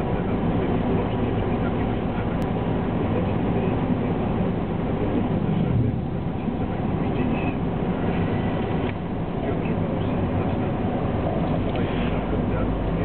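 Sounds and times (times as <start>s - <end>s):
car engine and tyre road noise: 0.0s - 13.0s.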